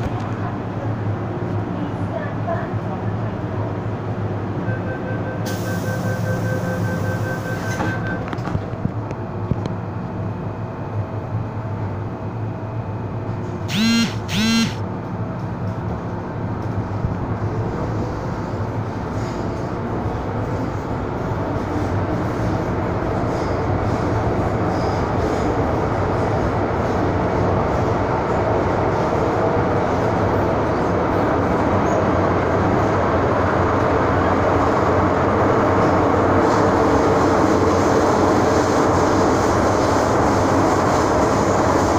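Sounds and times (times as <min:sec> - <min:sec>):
train running noise: 0:00.0 - 0:41.9
short loud tones: 0:04.7 - 0:08.2, 0:13.7 - 0:14.8.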